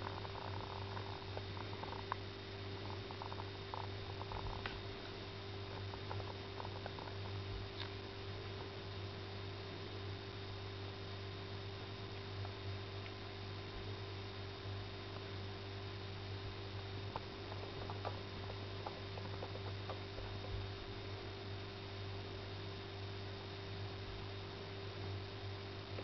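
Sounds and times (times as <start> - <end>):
cat purring: 0.0 - 7.4, 17.1 - 20.7.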